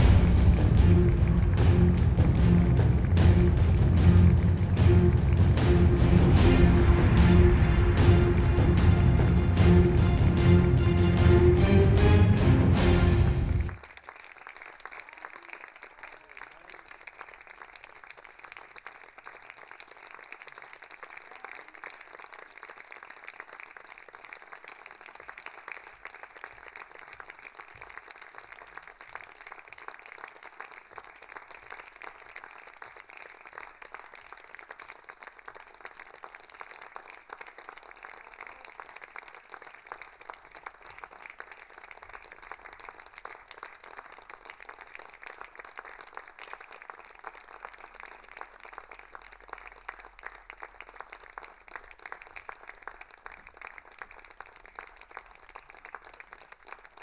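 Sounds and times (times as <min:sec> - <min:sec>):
audience applauding: 0:00.0 - 0:57.0.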